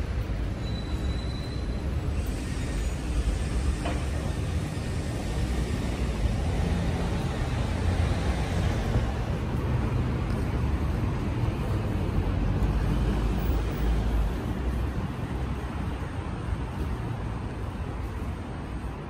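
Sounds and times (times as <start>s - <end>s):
passing vehicles rumbling: 0.0s - 19.0s.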